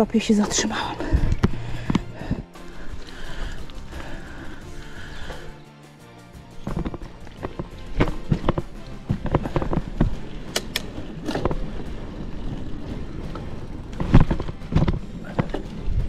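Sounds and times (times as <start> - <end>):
mountain bike rattling over stones: 6.7 - 16.0.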